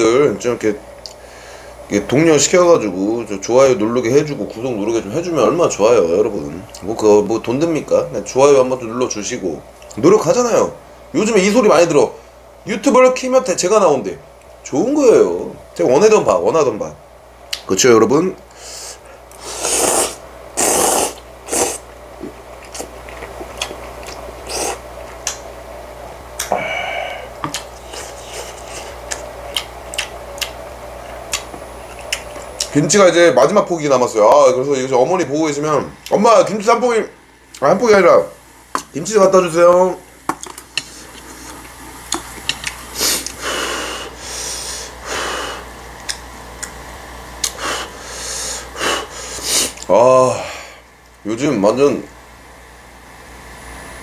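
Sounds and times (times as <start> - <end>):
noodles slurped: 19.3 - 25.3, 40.8 - 43.4
wet chewing: 19.3 - 25.4, 27.4 - 32.8, 40.4 - 43.4
hissy breaths and sniffs: 26.5 - 29.1, 42.9 - 45.8, 47.4 - 49.8.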